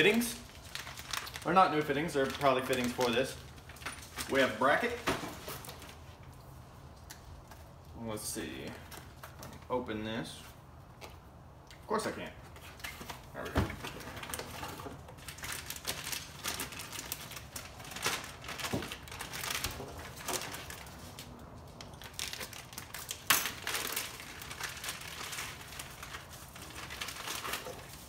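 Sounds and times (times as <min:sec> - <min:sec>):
plastic bags crinkling: 0:00.0 - 0:06.1, 0:13.8 - 0:28.0.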